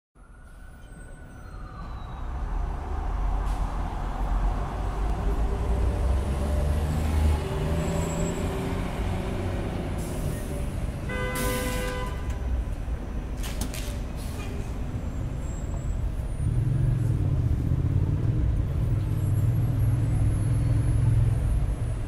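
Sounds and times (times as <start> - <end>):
heavy vehicle engine rumble: 0.5 - 22.0
brakes hissing and squealing: 9.9 - 11.9, 14.1 - 17.1.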